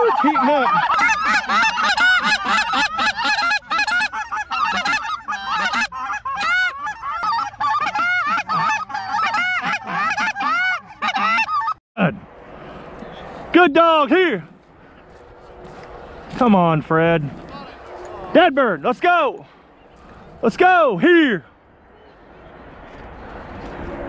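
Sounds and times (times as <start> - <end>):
geese honking and clucking: 0.0 - 11.8
reed goose calls: 0.0 - 11.8.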